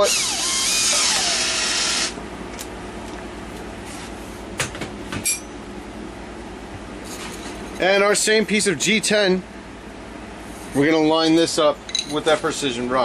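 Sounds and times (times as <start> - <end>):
milling machine spindle whine: 0.0 - 2.2
low steady hum: 0.0 - 13.0.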